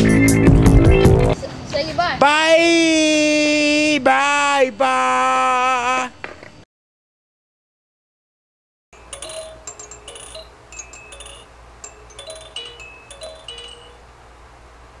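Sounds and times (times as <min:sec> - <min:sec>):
tinkling chimes: 0:09.0 - 0:14.1.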